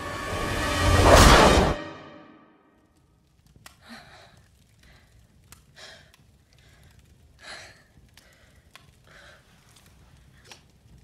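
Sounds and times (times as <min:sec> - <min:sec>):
faint small clicks: 0:03.4 - 0:11.0
woman breathing heavily: 0:03.8 - 0:09.8.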